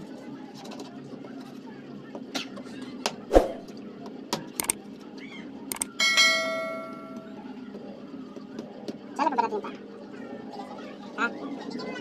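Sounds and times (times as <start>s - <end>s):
quick clicks: 5.7s - 5.9s
bell ding: 5.7s - 7.4s.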